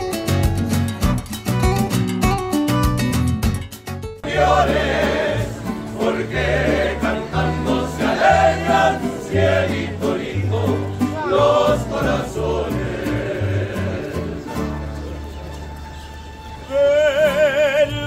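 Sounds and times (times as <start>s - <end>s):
group singing: 4.2s - 14.6s.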